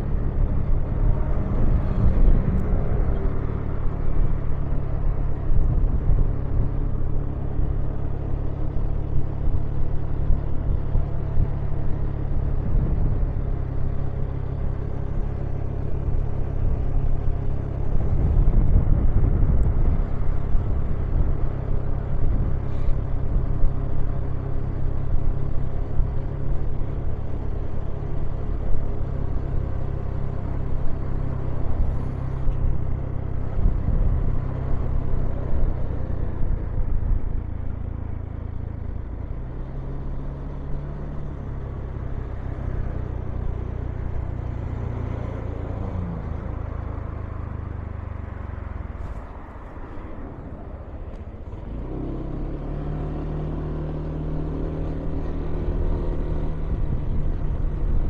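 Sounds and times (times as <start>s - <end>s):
vehicles passing close by: 0.0s - 58.0s.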